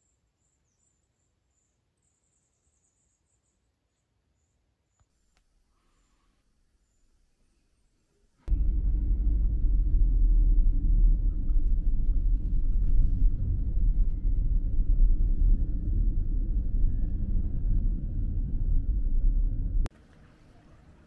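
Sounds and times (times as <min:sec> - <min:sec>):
car road and engine rumble: 0:08.5 - 0:21.0.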